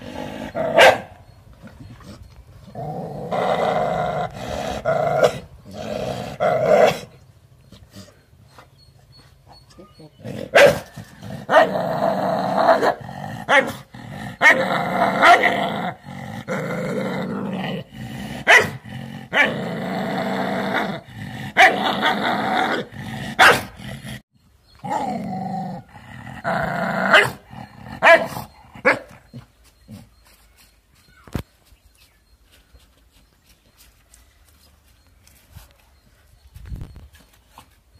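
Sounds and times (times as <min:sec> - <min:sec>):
dog growling: 0:00.0 - 0:00.8, 0:10.2 - 0:24.2, 0:24.8 - 0:28.8
dog barking sharply: 0:23.4 - 0:23.6.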